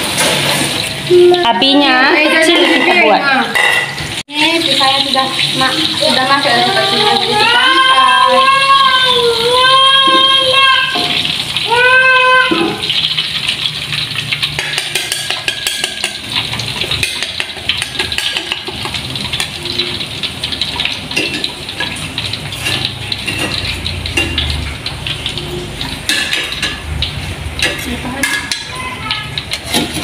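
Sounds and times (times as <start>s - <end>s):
food sizzling in hot oil: 0.0s - 30.0s
spatulas scraping against pan: 12.6s - 30.0s.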